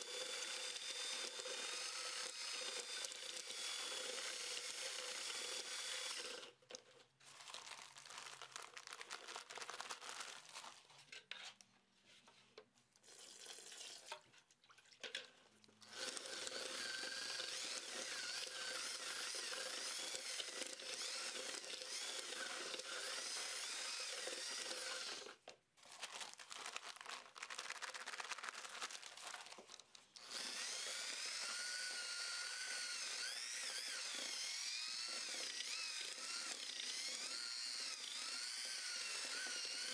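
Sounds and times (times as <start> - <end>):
drill mixer stirring mortar in bucket: 0.0 - 7.6, 15.0 - 26.3, 28.6 - 39.9.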